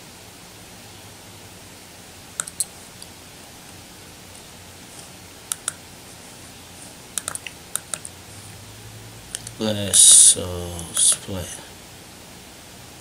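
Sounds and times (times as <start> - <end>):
computer mouse clicking: 2.4 - 3.1, 5.0 - 5.8, 7.2 - 8.1
faint hiss: 8.0 - 12.0.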